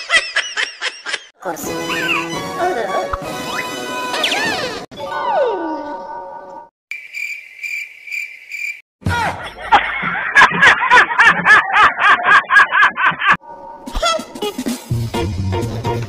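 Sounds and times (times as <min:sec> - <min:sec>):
cricket chirping: 0:06.9 - 0:08.8.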